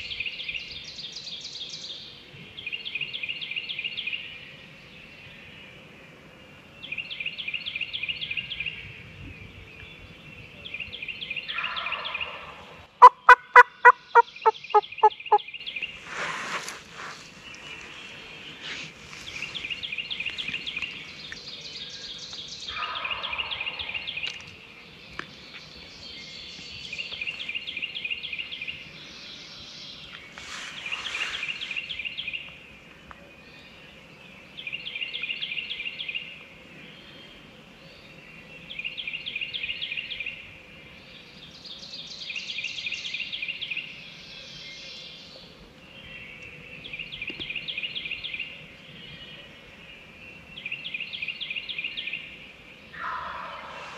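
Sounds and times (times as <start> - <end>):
turkey yelps: 11.6 - 15.4, 53.0 - 53.9
songbird high trill: 13.0 - 16.0.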